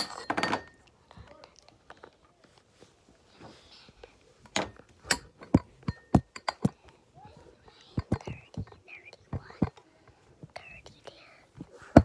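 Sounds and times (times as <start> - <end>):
knocks and taps: 7.9 - 9.8.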